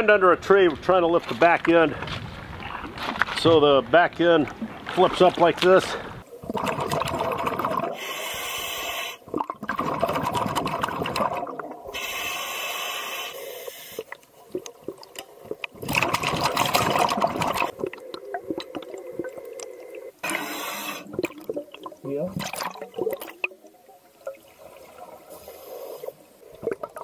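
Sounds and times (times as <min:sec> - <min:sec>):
exhaled bubbles burbling: 0:06.2 - 0:08.2, 0:09.2 - 0:12.2, 0:14.0 - 0:27.0
regulator inhale hiss: 0:07.9 - 0:09.3, 0:11.9 - 0:14.2, 0:19.2 - 0:21.1, 0:25.3 - 0:26.3.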